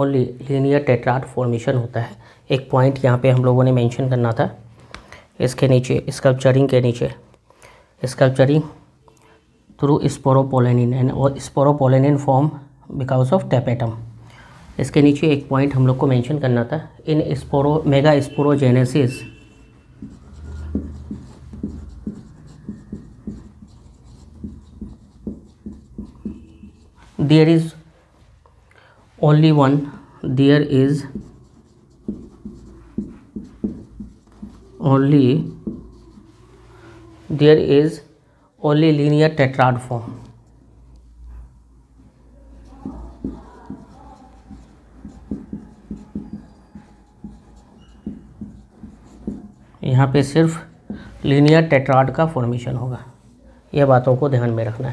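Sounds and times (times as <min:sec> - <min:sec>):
pen scratching on paper: 0:15.0 - 0:27.8, 0:29.3 - 0:37.8, 0:42.5 - 0:52.4.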